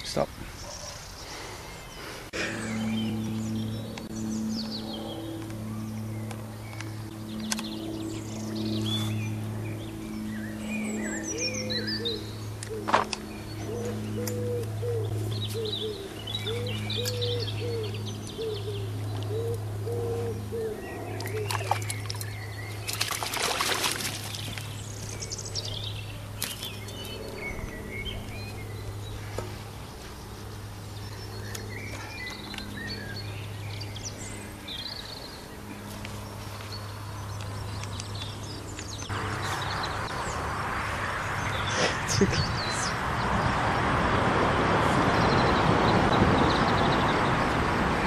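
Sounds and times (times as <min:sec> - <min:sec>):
steady low hum: 0:00.0 - 0:43.2
birds singing and chirping: 0:00.0 - 0:43.6, 0:45.0 - 0:47.7
fish splashing in net: 0:22.8 - 0:24.5.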